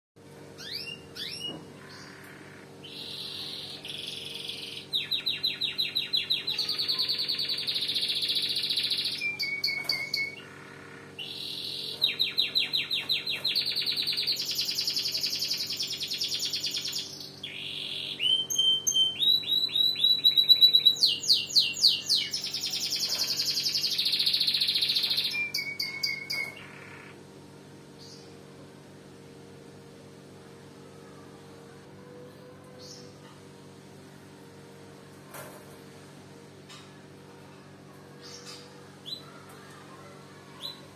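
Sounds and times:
steady low hum: 0.2 - 40.9
canary singing trills: 0.6 - 27.2.

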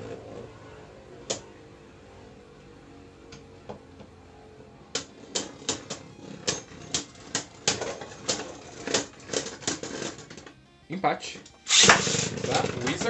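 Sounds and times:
spinning tops clacking together: 11.7 - 13.0
spinning tops whirring: 11.7 - 13.0.

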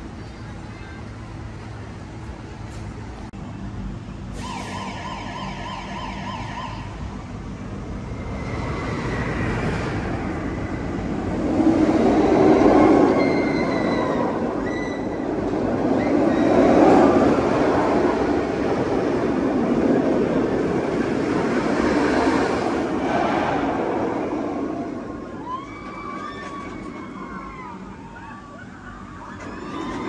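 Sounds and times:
roller coaster rushing past: 7.8 - 30.0.

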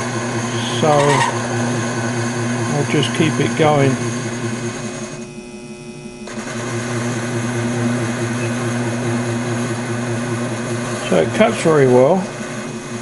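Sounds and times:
tool cutting steel: 0.0 - 5.2
lathe humming: 0.0 - 13.0.

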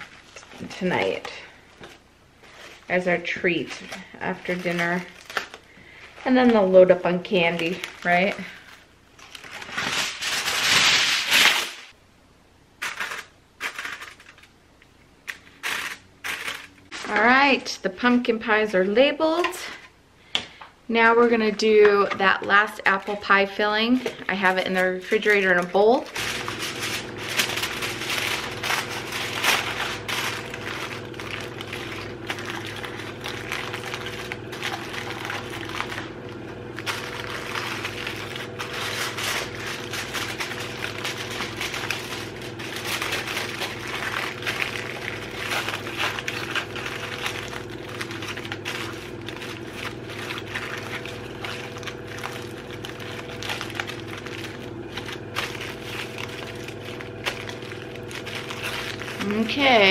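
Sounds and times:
aluminum foil crinkling: 0.0 - 12.0, 12.8 - 14.6, 15.2 - 18.3, 21.0 - 59.9
steady low hum: 16.0 - 59.9.

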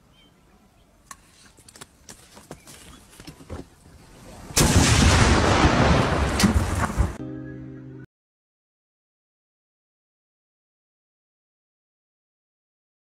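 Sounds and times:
grenade blast: 4.5 - 7.2.

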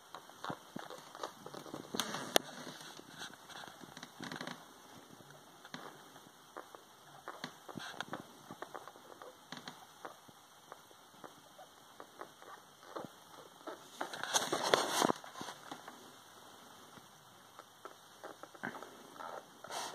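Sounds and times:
rustling scrape: 0.5 - 4.5, 13.7 - 16.0, 19.6 - 19.9.

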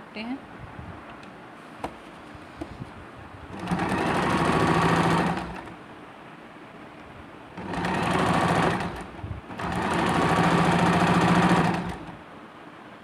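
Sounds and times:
sewing machine stitching: 3.5 - 5.8, 7.6 - 12.2.

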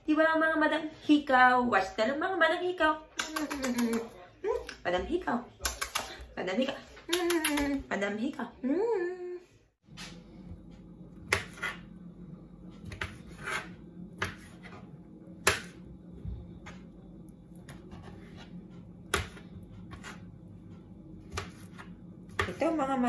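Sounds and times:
steady low hum: 7.6 - 23.0.

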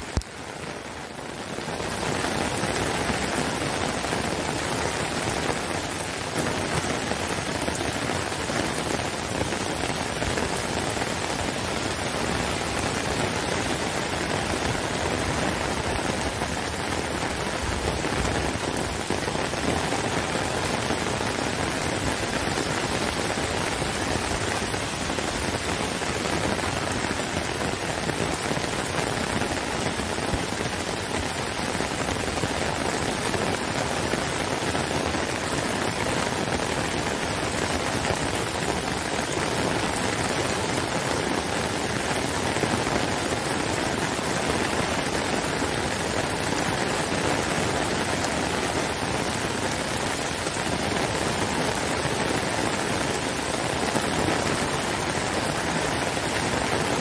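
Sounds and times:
heavy rain on grass and brick: 0.0 - 57.0.

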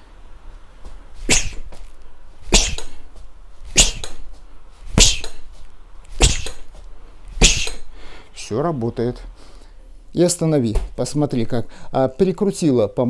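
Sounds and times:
punches thudding on heavy bag: 1.3 - 1.8, 2.5 - 3.0, 3.7 - 4.3, 4.9 - 5.4, 6.2 - 6.7, 7.4 - 7.8
sharp hissing exhale: 7.4 - 8.3.

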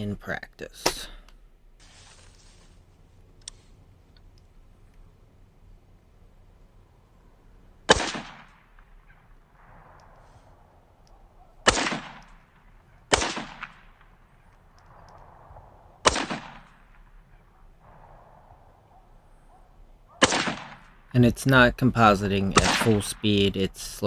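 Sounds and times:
rifle shots echoing: 7.9 - 21.2, 22.4 - 23.6.

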